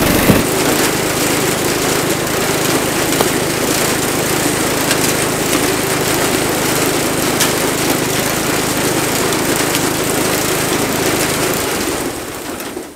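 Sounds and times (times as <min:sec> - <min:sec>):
firewood processor engine running: 0:00.0 - 0:12.9
split wood dropping on pile: 0:02.7 - 0:03.6.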